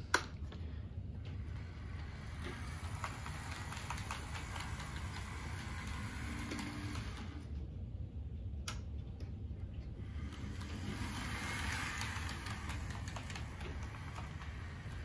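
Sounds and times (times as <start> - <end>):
model locomotive motor hum: 1.2 - 7.6, 9.9 - 15.0
rapid ticking from wheels: 1.5 - 7.3, 10.1 - 15.0.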